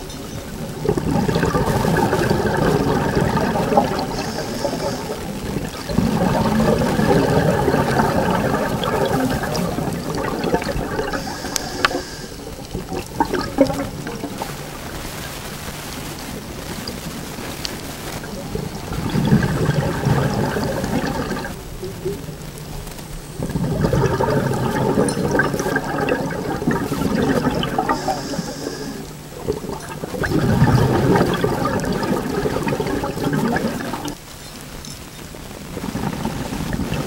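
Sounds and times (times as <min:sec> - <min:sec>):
bubbles gurgling from regulator: 0:00.0 - 0:15.7, 0:16.4 - 0:34.2, 0:35.7 - 0:37.0.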